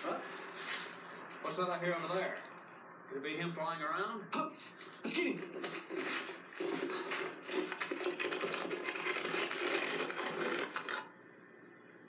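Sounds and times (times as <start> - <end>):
camcorder handling rustle: 5.4 - 11.1.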